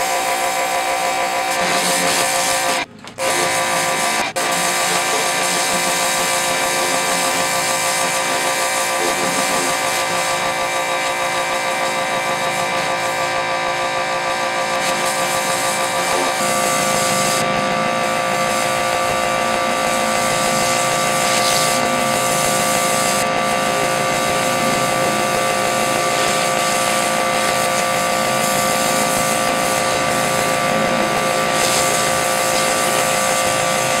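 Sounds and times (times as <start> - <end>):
pressure washer motor hum: 0.0 - 34.0
water spray hissing: 19.9 - 33.9.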